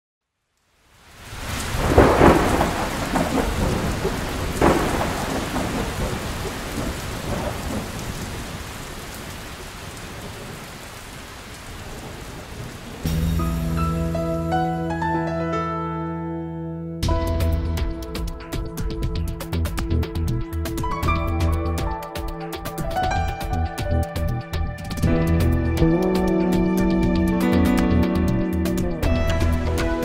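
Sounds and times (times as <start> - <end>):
rain hissing: 0.6 - 14.5
thunder clap: 1.4 - 9.3.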